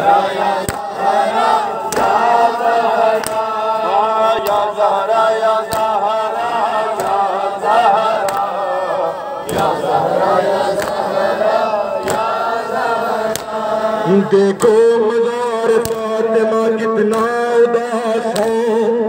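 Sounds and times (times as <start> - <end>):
men chanting in unison: 0.0 - 19.0
hands slapping chests: 0.2 - 8.7, 9.4 - 13.8, 15.8 - 16.1, 18.3 - 18.6.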